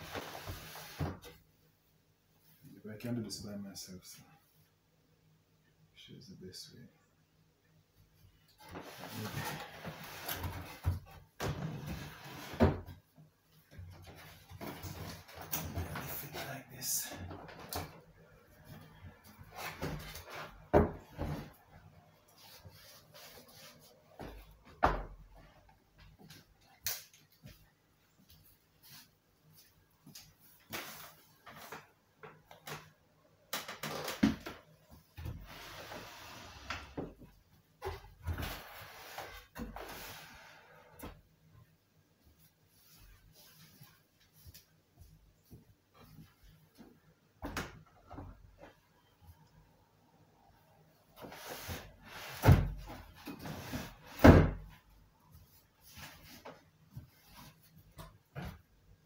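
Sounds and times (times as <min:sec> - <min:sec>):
wood scraping on floor: 0:08.6 - 0:12.9.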